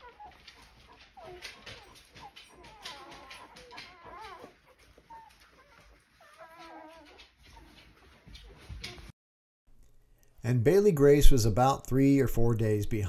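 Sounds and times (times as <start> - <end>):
puppies squeaking and crying: 0.0 - 9.1.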